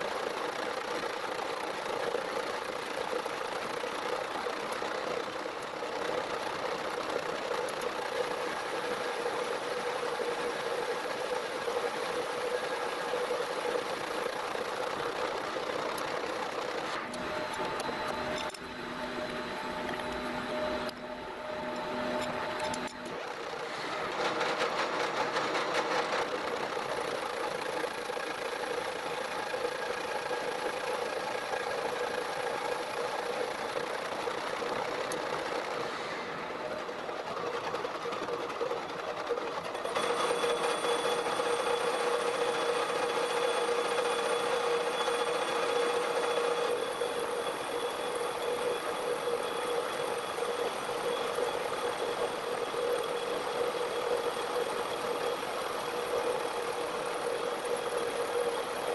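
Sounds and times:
metal lathe humming and whining: 7.9s - 24.1s, 39.6s - 58.9s.

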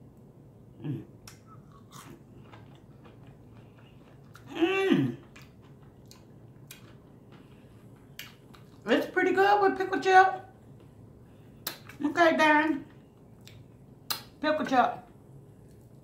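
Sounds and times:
woman humming: 0.8s - 1.1s, 4.5s - 5.2s
person chewing crispy food: 1.3s - 8.8s.

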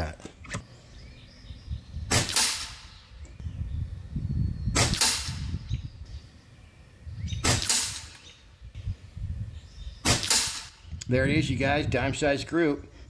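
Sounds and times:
air rifle shot crack: 2.1s - 2.9s, 4.7s - 5.5s, 7.4s - 8.3s, 10.0s - 10.8s.

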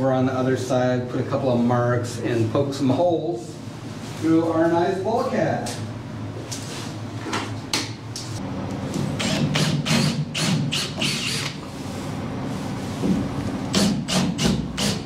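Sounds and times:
drill boring a hole: 9.2s - 11.6s, 13.7s - 15.0s.

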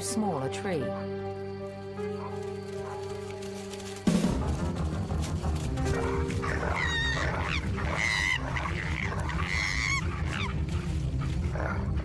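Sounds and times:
faint music: 0.0s - 12.0s
koala screaming: 5.9s - 10.9s
dog growling: 5.9s - 12.0s.

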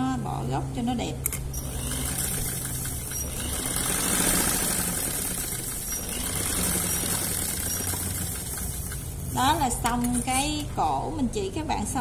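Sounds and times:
sewing machine running: 1.5s - 10.3s.

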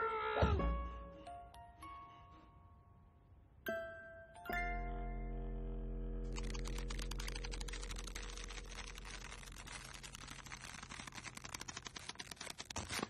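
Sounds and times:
low steady hum: 4.6s - 11.2s.

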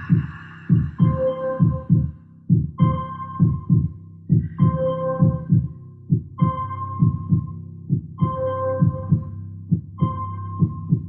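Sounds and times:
ringing bell-like tone: 0.0s - 2.1s
low drone: 0.0s - 2.5s
low thumping pulse: 0.0s - 11.0s.

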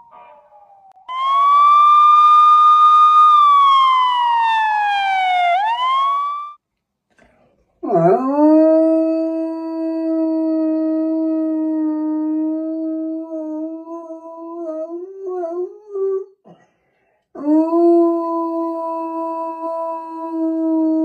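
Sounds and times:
dog howling: 0.0s - 4.6s
siren wailing: 0.0s - 6.6s.

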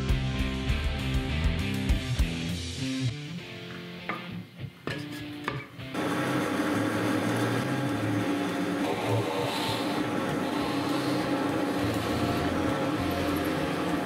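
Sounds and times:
drill press boring into plywood: 6.0s - 14.0s.

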